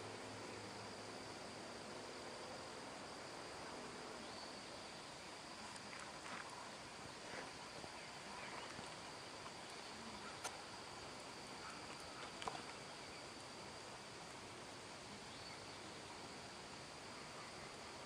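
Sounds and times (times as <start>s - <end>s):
steady hiss: 0.0s - 18.0s.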